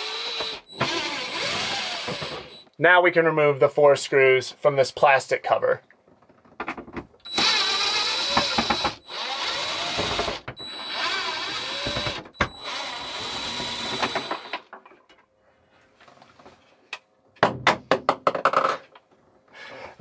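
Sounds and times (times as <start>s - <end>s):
impact driver motor whine: 0.0s - 2.7s, 7.3s - 14.6s.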